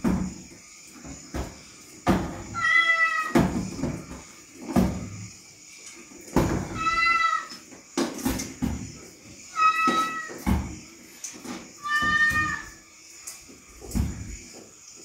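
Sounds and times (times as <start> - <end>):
cat meowing: 2.6 - 3.4, 9.5 - 10.4, 11.8 - 12.8.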